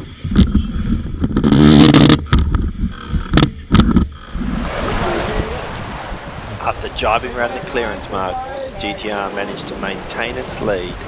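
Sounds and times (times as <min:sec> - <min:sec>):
wind buffeting microphone: 0:00.0 - 0:11.0
water rushing past hull: 0:04.2 - 0:11.0.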